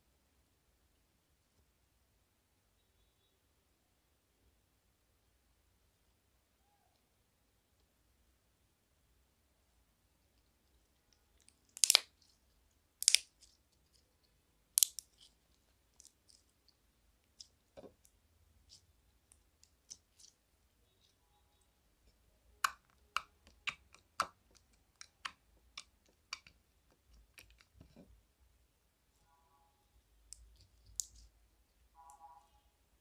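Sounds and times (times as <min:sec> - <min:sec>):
slime sticky clicks and pops: 0:11.7 - 0:12.1, 0:13.0 - 0:13.3.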